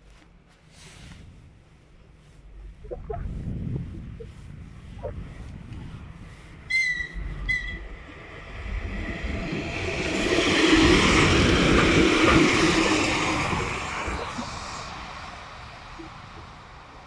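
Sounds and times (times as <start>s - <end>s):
train wheels rumbling on rails: 5.3s - 17.0s
locomotive horn toots: 6.7s - 7.8s.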